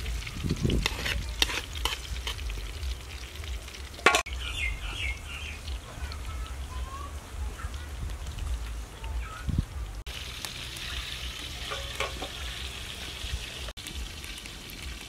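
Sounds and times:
food sizzling in oil: 0:00.0 - 0:15.0
metal spatula scraping a wok: 0:00.7 - 0:02.6, 0:11.6 - 0:12.5
birds chirping: 0:04.2 - 0:10.0.

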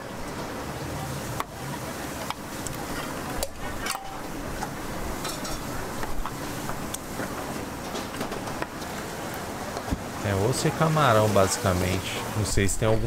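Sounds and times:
steady background hiss: 0:00.0 - 0:13.0
steel bowls and utensils clinking: 0:00.2 - 0:09.0.

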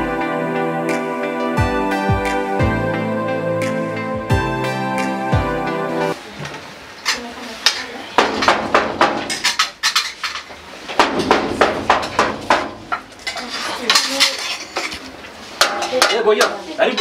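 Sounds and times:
metallic banging and rattling: 0:08.2 - 0:15.0.

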